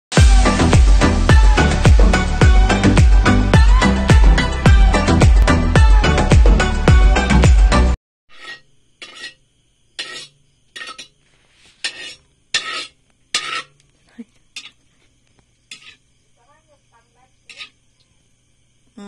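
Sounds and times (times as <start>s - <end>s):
cookware knocks and scrapes: 8.3s - 9.4s, 10.0s - 11.2s, 11.8s - 13.8s, 14.6s - 14.8s, 15.7s - 16.0s, 17.5s - 17.8s.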